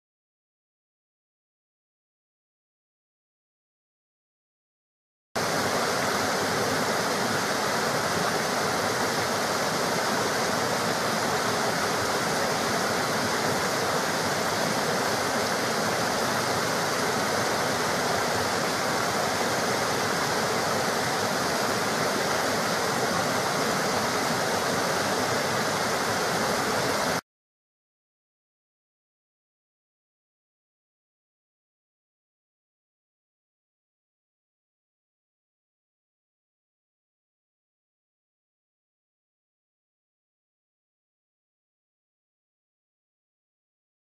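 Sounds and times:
rushing water roar: 5.4s - 27.2s.

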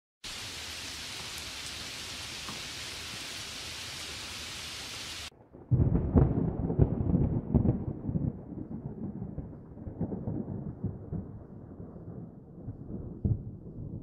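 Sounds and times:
heavy rain hissing: 0.2s - 5.3s
crackling rumble of thunder: 5.3s - 14.0s.

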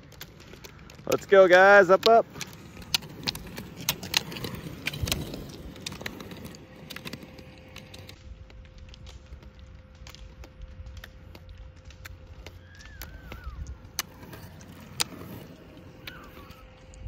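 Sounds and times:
roller skis rolling on asphalt: 0.0s - 17.0s
ski pole tips clicking: 0.1s - 8.2s.

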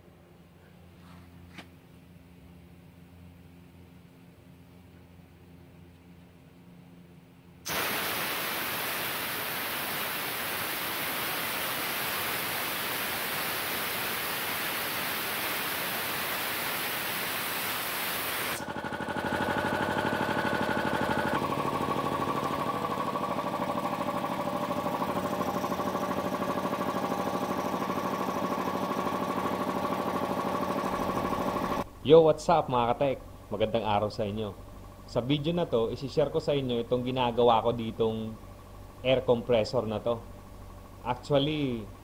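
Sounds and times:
air compressor motor running: 7.6s - 31.9s
compressed air hissing: 7.7s - 18.6s.

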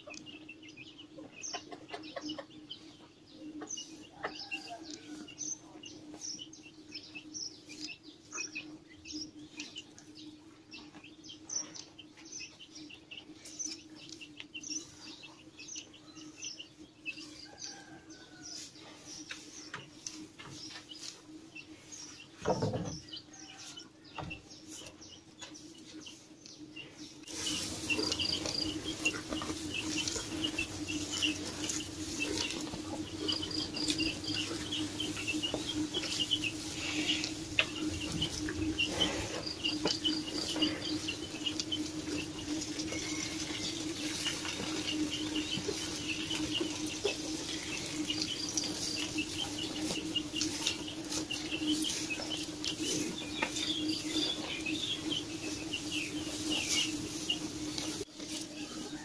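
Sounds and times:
small birds chirping: 0.0s - 59.0s
steady low hum: 24.0s - 58.9s
rustles and clicks: 27.2s - 58.7s.

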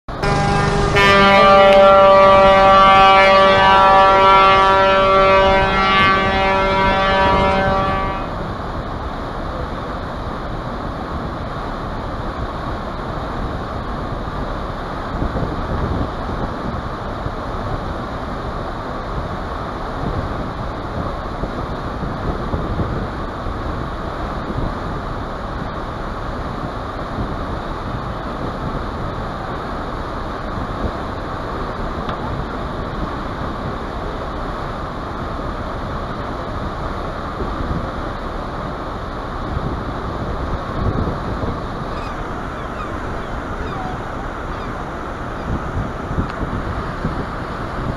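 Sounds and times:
ship's horn blast: 0.1s - 8.7s, 38.7s - 47.9s
ship engine noise: 0.1s - 47.9s
wake water: 0.2s - 47.9s
wind rushing: 39.5s - 47.9s.

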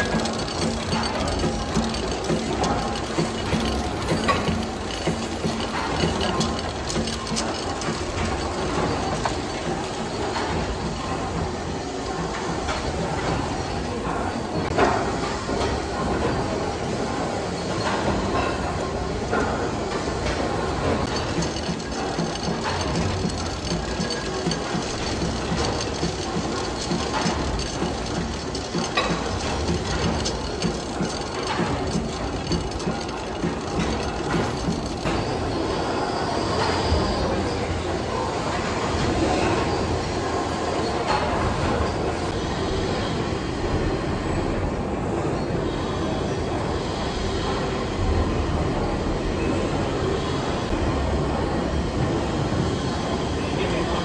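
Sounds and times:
steam engine clatter: 0.0s - 42.4s.

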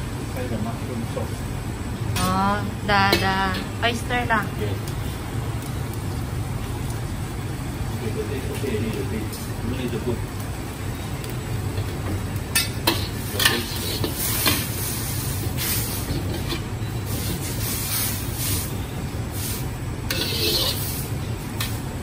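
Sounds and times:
noodles sizzling: 0.0s - 22.0s
spatula scraping a wok: 12.5s - 21.8s.

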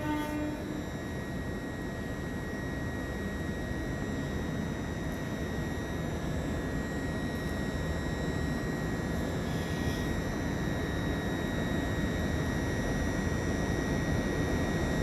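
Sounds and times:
diesel train rumble: 0.0s - 0.8s
thin high whine: 0.0s - 15.0s.

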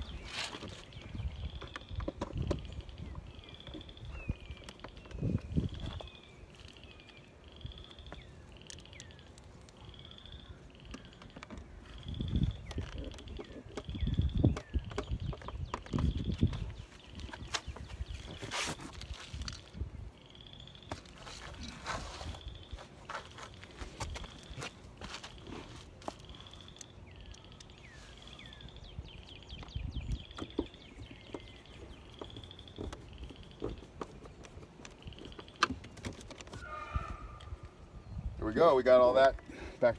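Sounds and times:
birds singing: 0.0s - 39.9s
frogs trilling: 2.6s - 5.0s, 6.6s - 15.0s
high bird trill: 2.6s - 23.6s, 26.2s - 35.7s.

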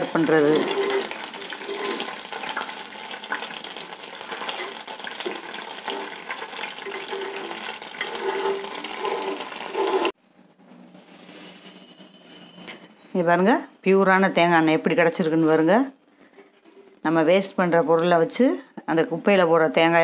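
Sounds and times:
metal spoon stirring in a pan: 0.0s - 10.2s
oil sizzling and crackling in a pan: 0.0s - 10.2s.

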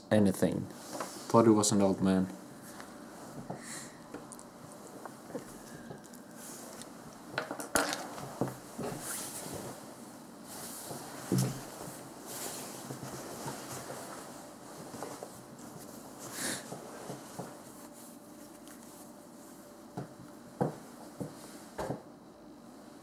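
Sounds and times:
soft rustle: 8.2s - 19.8s
soft knocks: 20.0s - 22.1s.

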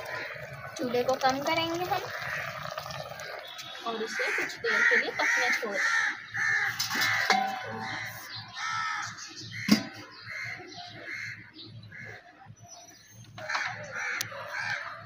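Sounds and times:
crows cawing: 0.0s - 12.3s, 13.4s - 15.0s
metal lid clanking on pot: 6.8s - 8.1s, 9.7s - 10.0s.

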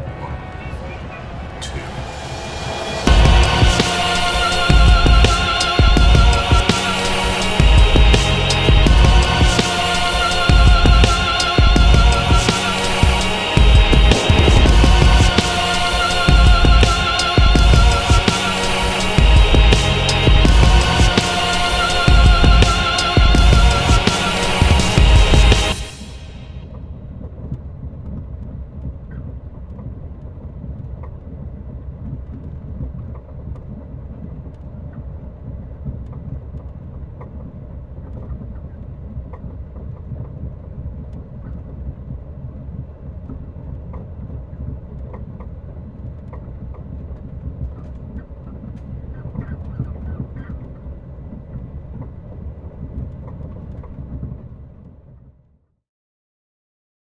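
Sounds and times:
low steady rumbling: 0.0s - 55.5s
faint crackles and clicks: 26.7s - 55.4s.

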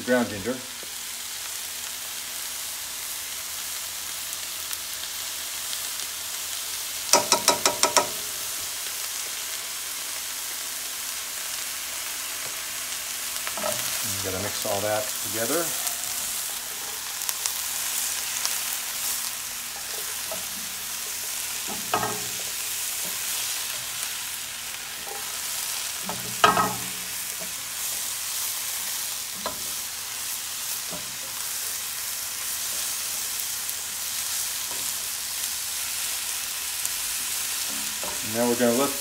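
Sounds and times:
vegetables sizzling in a skillet: 0.0s - 39.0s
spatula scraping a pan: 13.4s - 29.9s.

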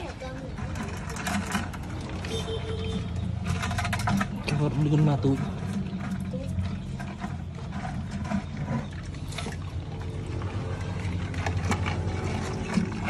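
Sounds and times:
water sloshing in a plastic tub: 0.0s - 13.0s
steady low hum: 2.8s - 13.0s.

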